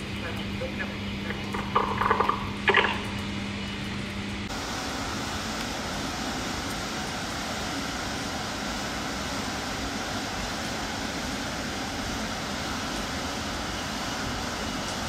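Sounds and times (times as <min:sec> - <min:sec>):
steady low hum: 0:00.0 - 0:15.0
passenger train passing: 0:04.5 - 0:15.0.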